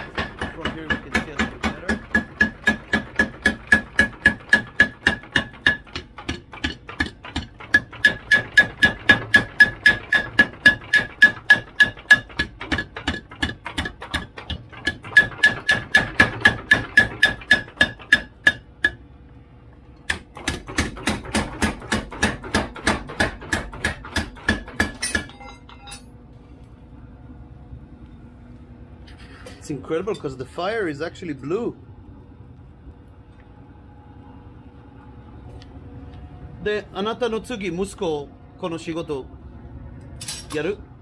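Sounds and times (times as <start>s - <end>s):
faint steady hum: 24.6s - 41.0s
hammer ringing on anvil: 25.0s - 26.1s.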